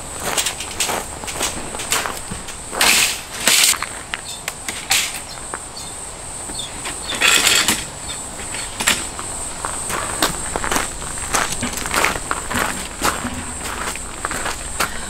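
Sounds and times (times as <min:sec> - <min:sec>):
insect chirring: 0:00.0 - 0:15.0
metal table scraping on gravel: 0:00.2 - 0:05.5, 0:06.4 - 0:15.0.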